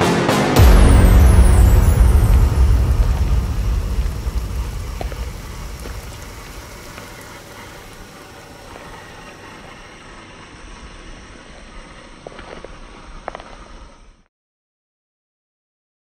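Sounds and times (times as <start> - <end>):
heavy low rumble: 0.6 - 9.9
stones ticking: 4.0 - 9.2
toy car motor and tyres rumbling: 6.8 - 14.3.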